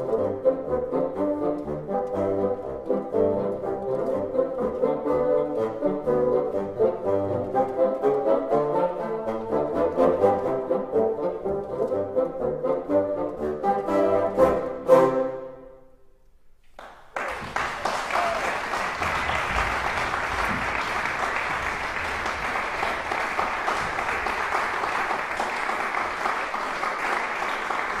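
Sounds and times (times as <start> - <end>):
audience applause: 16.8 - 28.0.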